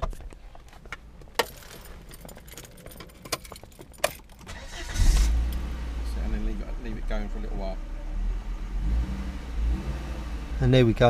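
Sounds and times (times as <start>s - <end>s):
keys jangling in ignition: 1.4s - 5.7s
car engine starting and idling: 1.4s - 11.0s.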